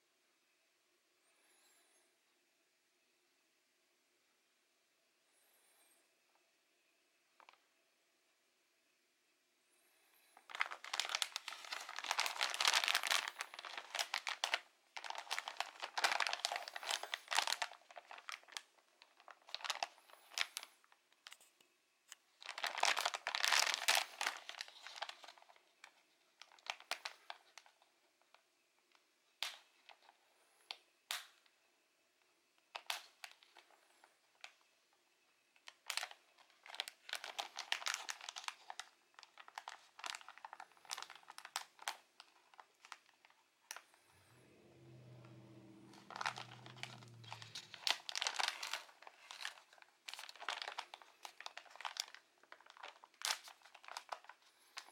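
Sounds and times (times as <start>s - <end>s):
plastic bag crinkling: 10.4s - 21.5s, 22.1s - 28.4s, 29.4s - 31.4s, 32.7s - 34.6s, 35.6s - 54.9s.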